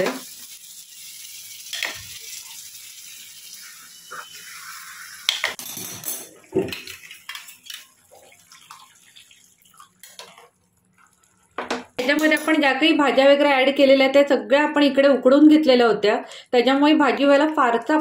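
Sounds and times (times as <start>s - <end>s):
water pouring into pot: 0.0s - 12.0s
metal ladle stirring: 9.6s - 11.6s.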